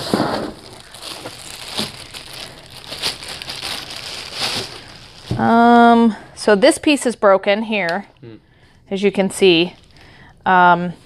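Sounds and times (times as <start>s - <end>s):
plastic wrapping crinkling: 0.0s - 5.8s, 9.5s - 10.1s.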